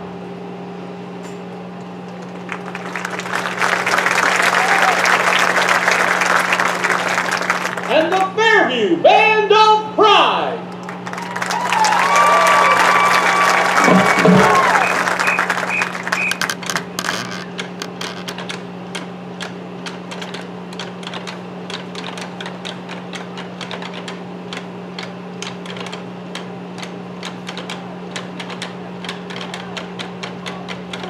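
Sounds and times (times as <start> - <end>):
steady low hum: 0.0 - 19.2.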